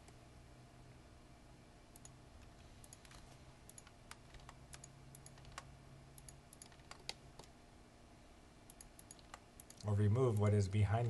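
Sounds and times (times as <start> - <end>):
low steady hum: 0.0 - 11.0
keyboard and mouse clicking: 2.0 - 2.2, 2.8 - 7.5, 8.7 - 10.5.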